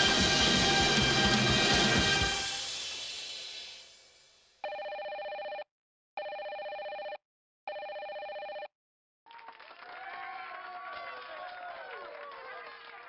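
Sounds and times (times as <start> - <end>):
music: 0.0 - 4.0
telephone ringing: 4.6 - 8.7.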